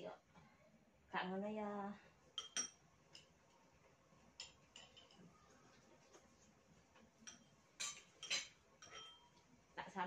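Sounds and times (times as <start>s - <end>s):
chopsticks clinking against bowls: 2.4s - 3.3s, 4.4s - 5.2s, 7.2s - 9.4s.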